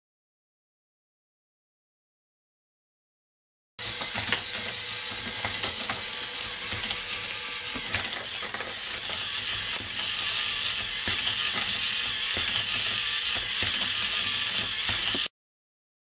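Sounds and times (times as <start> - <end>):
plastic ball machine clicking: 3.9 - 15.3.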